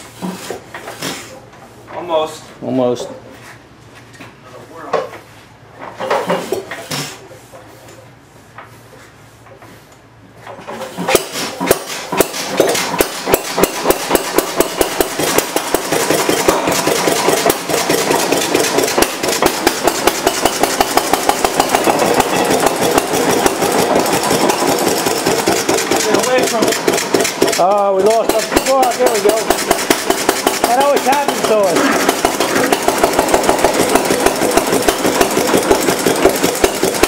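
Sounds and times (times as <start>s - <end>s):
single-cylinder gas engine running: 10.7s - 37.0s.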